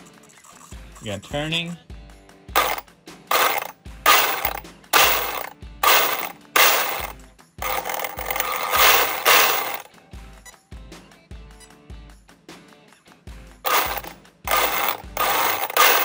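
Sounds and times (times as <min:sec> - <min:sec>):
electric motors revving: 0:02.6 - 0:09.9, 0:13.7 - 0:16.0
gear drivetrain whirring: 0:02.6 - 0:09.9, 0:13.7 - 0:16.0.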